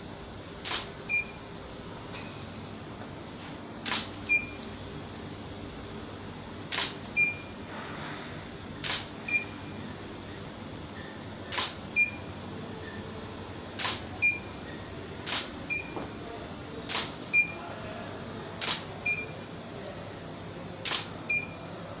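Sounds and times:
camera shutter click: 0:00.6 - 0:00.9, 0:03.8 - 0:04.1, 0:06.7 - 0:07.0, 0:08.8 - 0:09.1, 0:11.5 - 0:11.8, 0:13.8 - 0:14.1, 0:15.2 - 0:15.6, 0:16.9 - 0:17.2, 0:18.6 - 0:18.9, 0:20.8 - 0:21.1.

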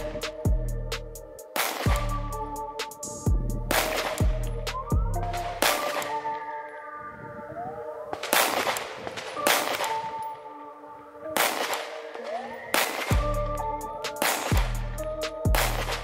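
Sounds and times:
background music: 0:00.0 - 0:16.0
pistol shots: 0:01.5 - 0:02.1, 0:03.7 - 0:04.4, 0:05.4 - 0:06.4, 0:08.2 - 0:10.3, 0:11.3 - 0:13.4, 0:14.1 - 0:14.8, 0:15.6 - 0:16.0.

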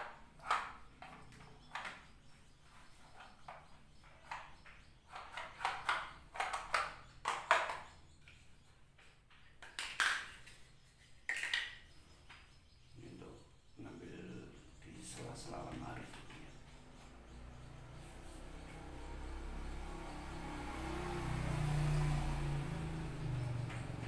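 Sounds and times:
plastic vacuum parts knocking: 0:05.1 - 0:07.9.

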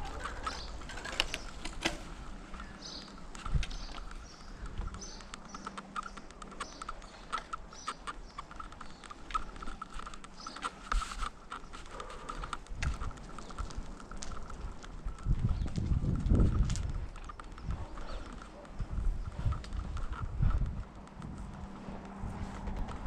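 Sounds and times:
bicycle freewheel hub ticking: 0:00.0 - 0:23.0.

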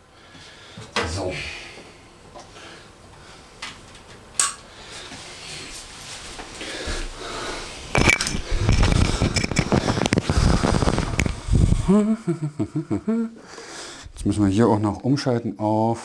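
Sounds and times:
rustling clicking and knocking: 0:08.0 - 0:11.4.

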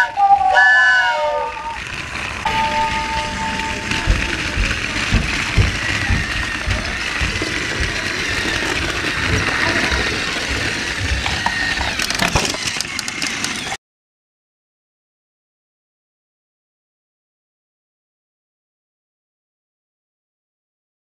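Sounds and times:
toy train motor whine: 0:00.0 - 0:13.8
wheels knocking on track: 0:01.5 - 0:13.8
sharp clattering knocks: 0:02.0 - 0:13.8.

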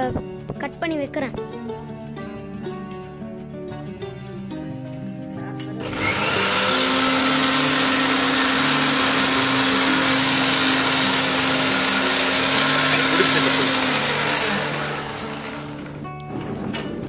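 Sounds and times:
blender jar whirring: 0:05.8 - 0:16.1
mixer grinder motor hum: 0:05.8 - 0:16.2.

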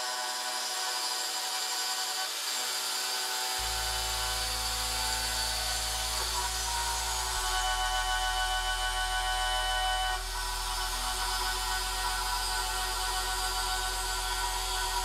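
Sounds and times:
milling machine whining: 0:00.0 - 0:15.0
low background music bass: 0:03.6 - 0:15.0.

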